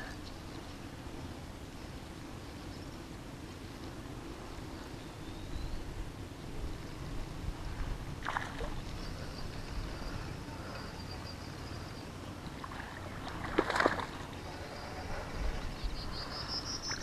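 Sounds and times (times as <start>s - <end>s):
low rumble of wind: 0.0s - 17.0s
fish splashing at water surface: 12.6s - 14.2s.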